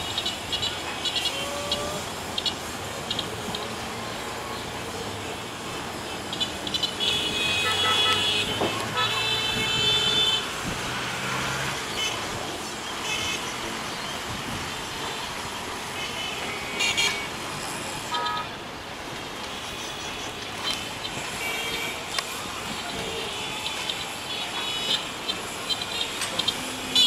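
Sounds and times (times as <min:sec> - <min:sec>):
train horn toots: 0:07.0 - 0:10.5
train running with low hum: 0:10.4 - 0:27.0.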